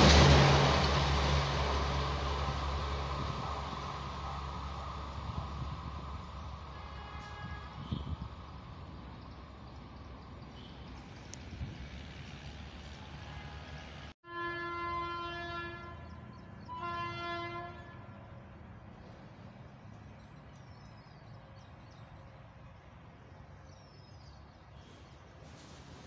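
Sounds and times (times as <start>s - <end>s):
faint birdsong: 2.2s - 13.9s, 15.2s - 26.0s
train horn blasts: 6.7s - 8.3s, 13.1s - 18.3s.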